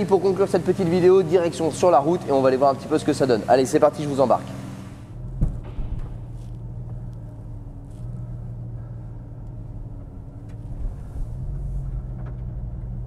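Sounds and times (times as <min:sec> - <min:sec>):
car engine low drone: 0:00.0 - 0:13.0.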